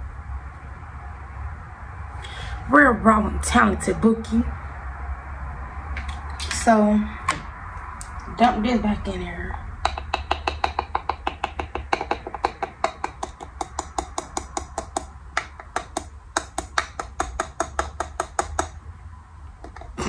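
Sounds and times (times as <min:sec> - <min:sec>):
plastic lid tapping against jar: 0:09.8 - 0:18.7.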